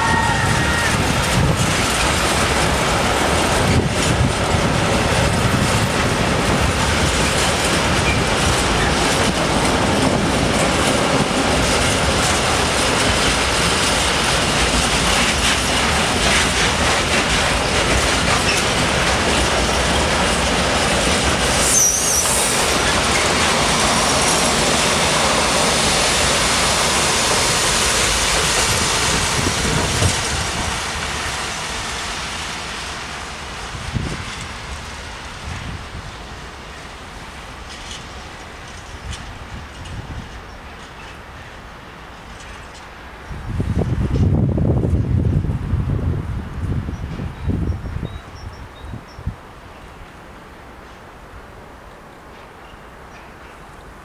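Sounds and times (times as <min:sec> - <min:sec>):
freight train rumbling past: 0:00.0 - 0:54.0
wheels clattering over rail joints: 0:00.7 - 0:32.4
high wheel squeal: 0:21.6 - 0:22.6.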